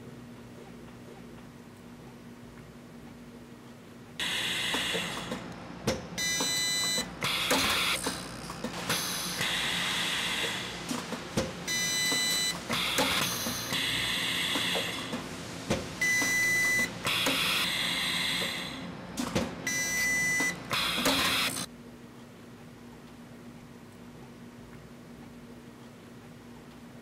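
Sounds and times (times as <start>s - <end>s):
machine hissing rush: 4.2s - 5.5s, 8.9s - 11.2s.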